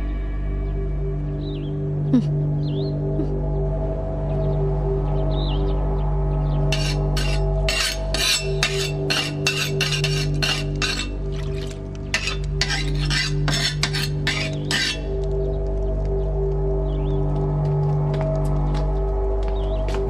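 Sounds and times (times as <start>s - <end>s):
low music drone: 0.0s - 20.0s
blade scraping on whetstone: 6.7s - 15.2s.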